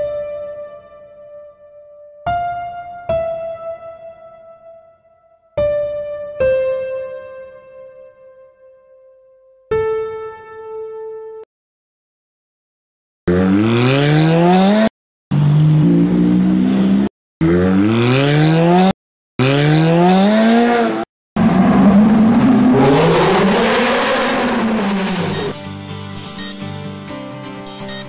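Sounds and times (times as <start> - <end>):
race car engine revving: 15.4 - 25.6.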